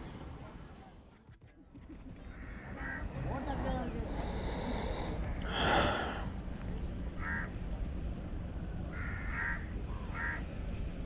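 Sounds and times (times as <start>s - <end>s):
crow cawing: 2.3s - 3.2s, 7.2s - 7.6s, 8.9s - 10.5s.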